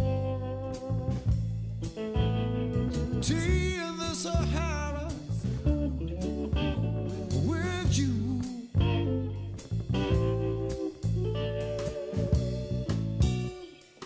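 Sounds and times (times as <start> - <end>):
guitars and bass: 0.0 - 14.0.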